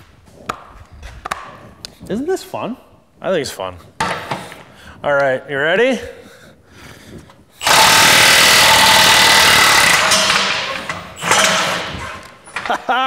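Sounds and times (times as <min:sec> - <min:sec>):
impact wrench hammering: 0:07.6 - 0:12.8.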